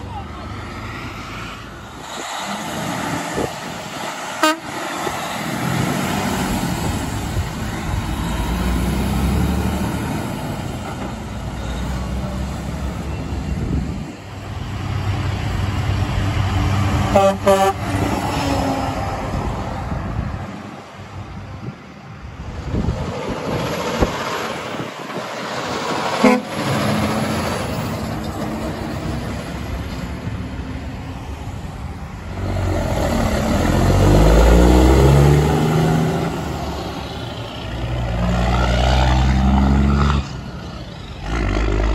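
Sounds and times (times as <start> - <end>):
diesel truck engine pulling away: 0.1 - 20.4, 22.4 - 41.9
truck air horn: 4.4 - 4.9, 17.1 - 18.8, 26.2 - 26.7.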